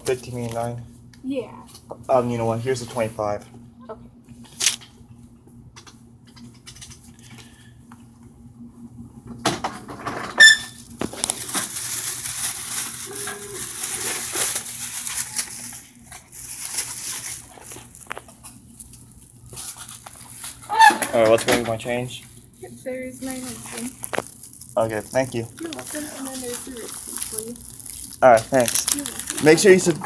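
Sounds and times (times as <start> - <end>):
faint steady hum: 0.0 - 30.0
rustling and rubbing: 11.1 - 18.6.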